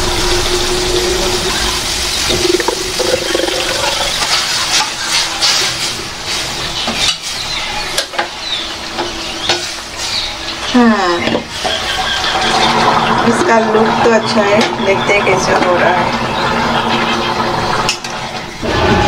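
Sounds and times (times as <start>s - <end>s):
steady hum and hiss: 0.0s - 11.6s
oil glugging and splashing: 2.2s - 4.6s.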